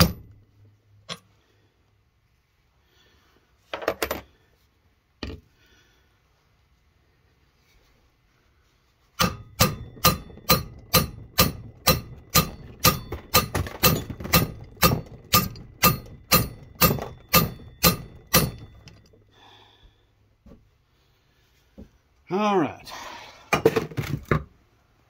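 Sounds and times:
ringing metal-on-metal blows: 0.0s - 0.4s, 9.2s - 19.2s.

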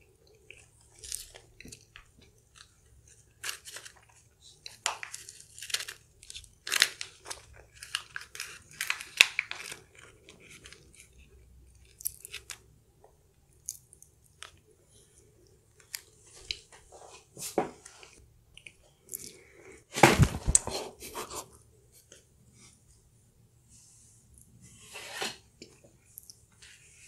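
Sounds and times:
plastic spoon scraping foil: 2.6s - 11.3s.

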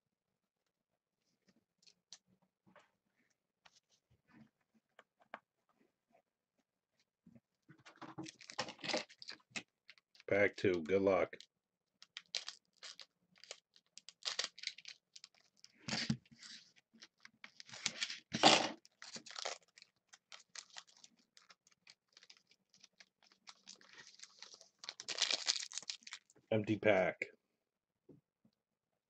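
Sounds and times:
foil wrapper crinkling and tearing: 8.2s - 10.3s, 12.0s - 26.4s.

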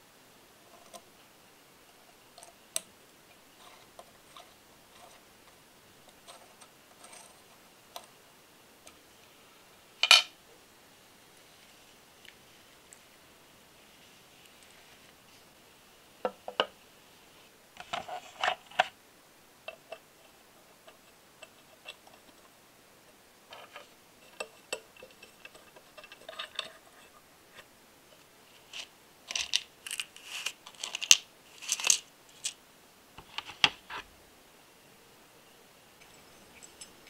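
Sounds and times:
small metal parts clicking: 28.8s - 32.6s.

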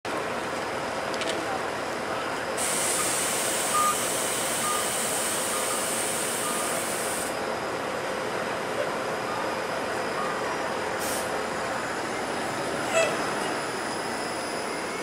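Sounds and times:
streetcar moving: 0.1s - 15.0s
traffic noise: 0.1s - 15.0s
short beeps: 3.7s - 4.0s, 4.6s - 6.8s, 9.2s - 10.6s.

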